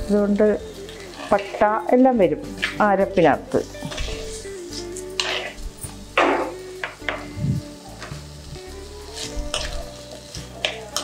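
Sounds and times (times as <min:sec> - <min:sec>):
background music: 0:00.0 - 0:11.0
food frying in oil: 0:00.0 - 0:11.0
metal spoon stirring: 0:03.7 - 0:05.6, 0:09.1 - 0:09.9.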